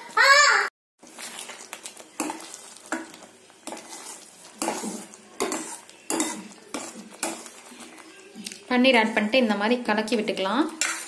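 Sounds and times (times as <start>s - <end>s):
spoon scraping a steel pot: 2.2s - 8.0s, 10.7s - 11.0s.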